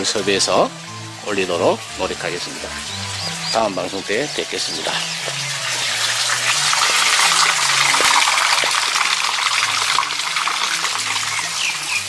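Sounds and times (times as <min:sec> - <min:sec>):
bird chirps: 0:02.6 - 0:06.0
mountain stream rushing: 0:04.6 - 0:09.7.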